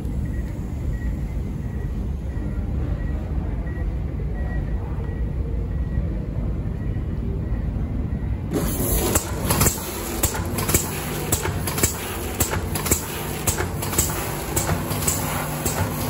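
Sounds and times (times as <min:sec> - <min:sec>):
packaging machine hum: 0:08.4 - 0:16.0
machine mechanism clacking: 0:08.5 - 0:16.0.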